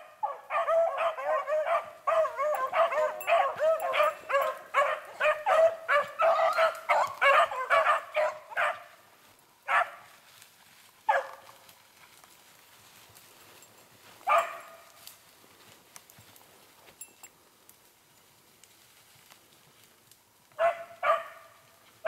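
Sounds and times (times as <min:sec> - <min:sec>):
hounds baying: 0:00.0 - 0:09.0, 0:14.2 - 0:14.9, 0:20.6 - 0:21.6.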